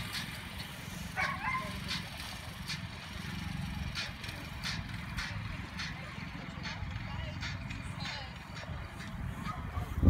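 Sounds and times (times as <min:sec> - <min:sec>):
dog yip: 0:01.2 - 0:01.8.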